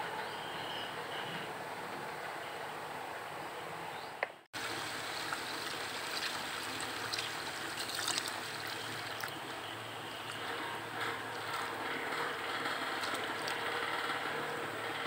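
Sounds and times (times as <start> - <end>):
tap water pouring into basin: 4.6 - 9.4, 10.0 - 13.8
hand swishing rice in water: 5.2 - 9.4.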